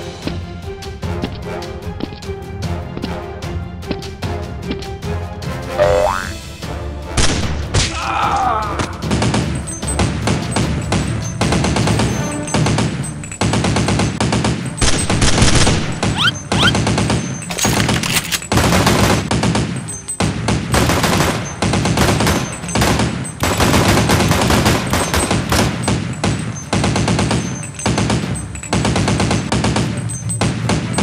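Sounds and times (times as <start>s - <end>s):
rapid automatic gunfire: 9.0s - 31.0s.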